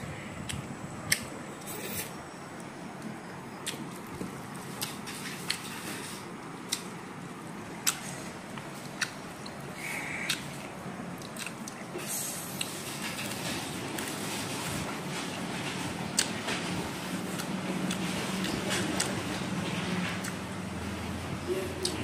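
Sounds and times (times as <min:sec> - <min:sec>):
low room hum: 0:00.0 - 0:22.0
person chewing food: 0:03.0 - 0:06.1, 0:07.8 - 0:13.4, 0:16.2 - 0:16.4, 0:17.3 - 0:19.2.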